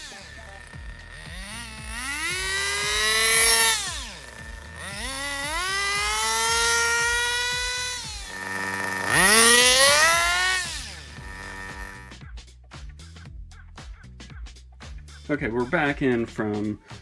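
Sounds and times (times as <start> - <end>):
model car engine revving: 0.0 - 12.2.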